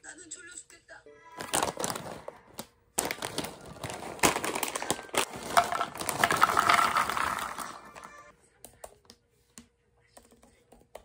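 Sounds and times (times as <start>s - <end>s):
snacks pouring into wooden bowl: 1.4s - 8.2s
plastic snack bag crinkling: 1.4s - 8.3s.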